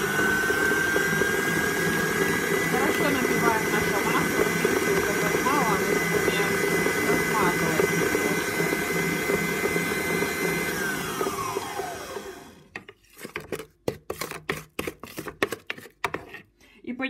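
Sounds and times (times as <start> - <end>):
stand mixer whirring: 0.0 - 12.7.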